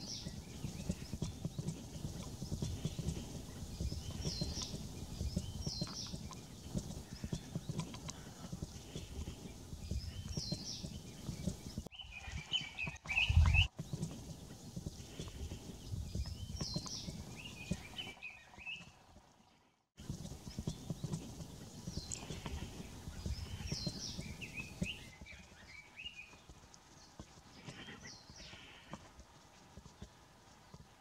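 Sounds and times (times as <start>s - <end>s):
bird twittering trill: 0.0s - 14.1s, 15.6s - 19.0s, 21.8s - 26.5s
songbirds chirping: 0.0s - 31.0s
steady low rumble: 0.4s - 11.9s.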